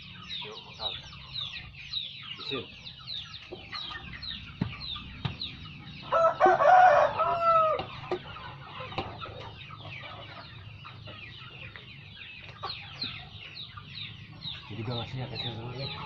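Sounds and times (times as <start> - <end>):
chicks peeping: 0.0 - 16.0
rooster crowing: 6.0 - 7.9.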